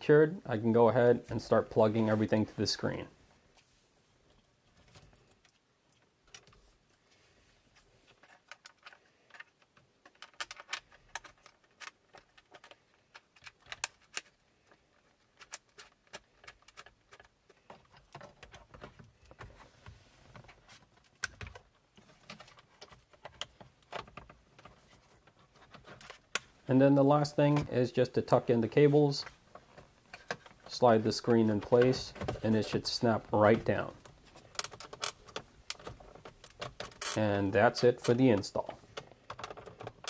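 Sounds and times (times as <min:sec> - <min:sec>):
plastic connectors clicking and rattling: 0:08.2 - 0:19.6, 0:34.0 - 0:37.2.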